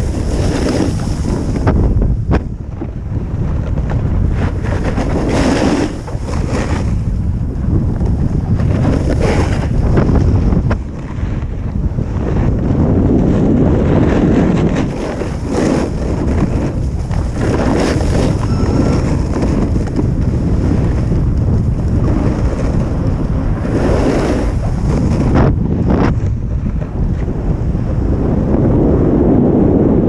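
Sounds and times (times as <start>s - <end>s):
ski edges scraping packed snow: 0.0s - 1.8s, 4.0s - 7.2s, 8.3s - 11.4s, 13.5s - 26.4s
wind buffeting microphone: 0.0s - 30.0s.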